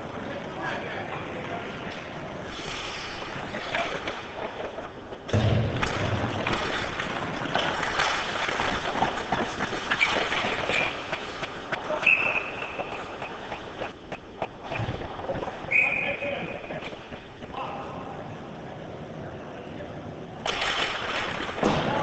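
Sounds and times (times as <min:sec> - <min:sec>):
skates scraping on ice: 0:00.0 - 0:17.6, 0:20.4 - 0:22.0
hockey sticks and puck clacking: 0:01.8 - 0:17.7, 0:20.4 - 0:22.0
referee's whistle blowing: 0:12.0 - 0:12.9, 0:15.7 - 0:16.4.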